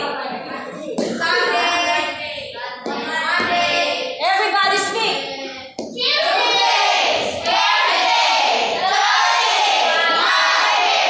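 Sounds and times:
young children's voices: 0:00.0 - 0:07.4.

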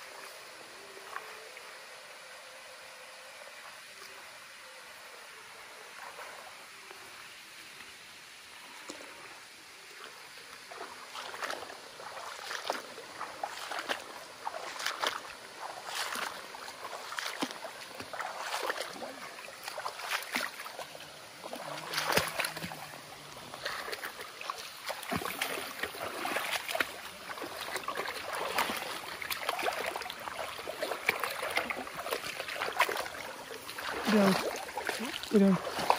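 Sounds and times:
muddy water splashing: 0:09.8 - 0:35.9.

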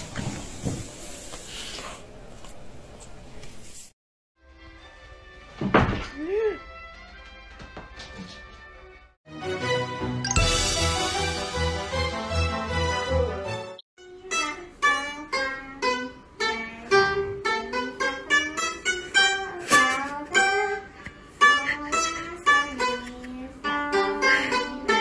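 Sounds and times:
plucked lute melody: 0:14.3 - 0:20.8, 0:23.6 - 0:25.0.

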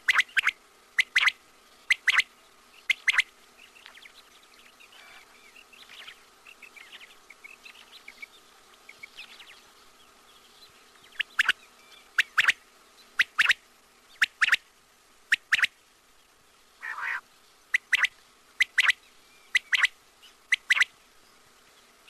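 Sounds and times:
quail whistled calls: 0:00.0 - 0:03.3, 0:11.1 - 0:12.6, 0:13.2 - 0:13.6, 0:14.2 - 0:14.6, 0:15.3 - 0:15.7, 0:16.8 - 0:20.9
soft bird chirps: 0:00.0 - 0:14.7, 0:15.3 - 0:22.0
faint steady hum: 0:00.0 - 0:22.0.

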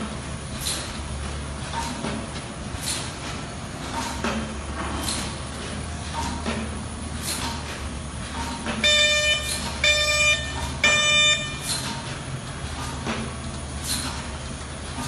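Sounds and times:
conveyors humming: 0:00.0 - 0:15.0
warning horn short beeps: 0:08.8 - 0:11.8.

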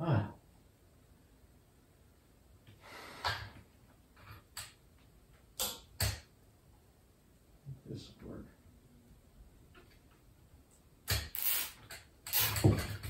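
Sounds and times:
sharp clicks and knocks: 0:04.2 - 0:06.3.

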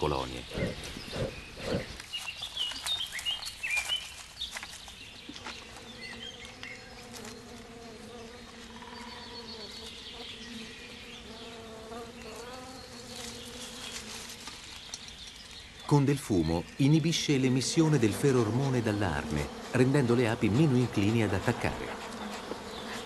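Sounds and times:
bees buzzing: 0:04.6 - 0:23.0
bee flying close by: 0:05.4 - 0:14.6, 0:17.6 - 0:23.0.

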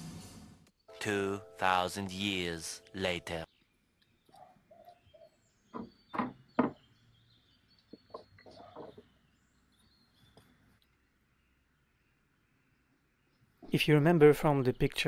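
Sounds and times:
faint birdsong: 0:00.7 - 0:15.0
wood knocking on workbench: 0:05.7 - 0:06.8.

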